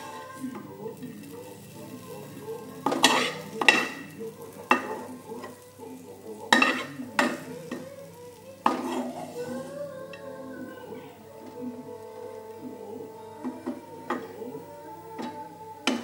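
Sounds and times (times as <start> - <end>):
spatula scraping a wok: 0.0 - 5.7, 6.3 - 10.2.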